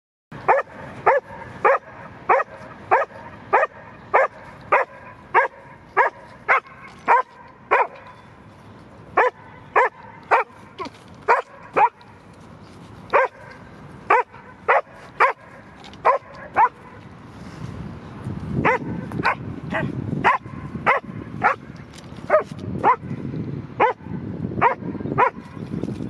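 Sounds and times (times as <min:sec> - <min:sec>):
dog barking: 0:00.5 - 0:08.1, 0:09.2 - 0:12.0, 0:13.1 - 0:17.0, 0:18.6 - 0:21.6, 0:22.3 - 0:23.1, 0:23.8 - 0:24.0, 0:24.6 - 0:25.4.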